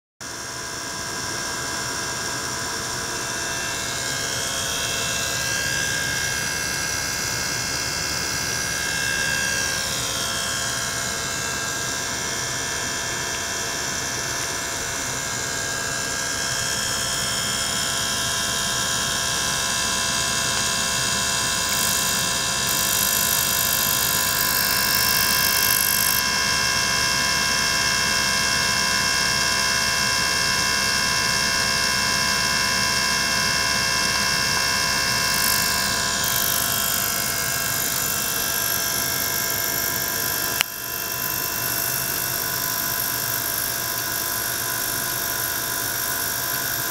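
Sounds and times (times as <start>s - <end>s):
electric pump humming: 0.2s - 46.9s
steady whining tones: 1.2s - 28.5s, 30.4s - 46.9s.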